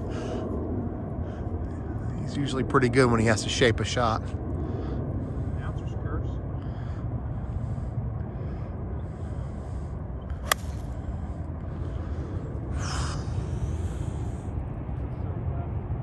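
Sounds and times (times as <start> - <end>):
golf club striking ball: 10.4 - 10.9.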